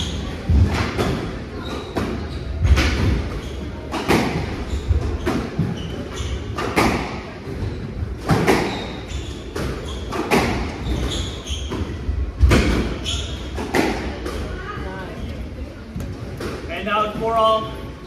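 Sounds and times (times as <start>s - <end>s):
shoes squeaking on wooden floor: 1.6s - 13.8s.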